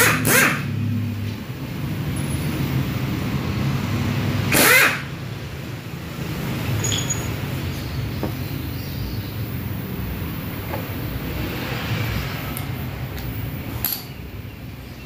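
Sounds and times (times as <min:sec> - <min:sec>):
impact wrench burst: 0:00.0 - 0:00.8, 0:04.4 - 0:05.2.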